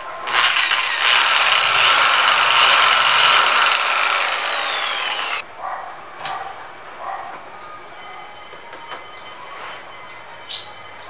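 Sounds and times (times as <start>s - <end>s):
electric drill boring through plastic: 0.2s - 5.4s.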